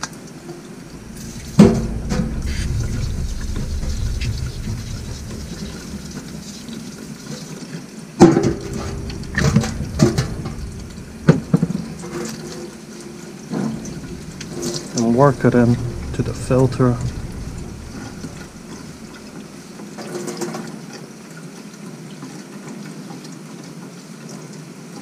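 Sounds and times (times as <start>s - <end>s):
liquid washing: 0.0s - 20.2s
sharp knocks and splashes: 8.2s - 12.8s.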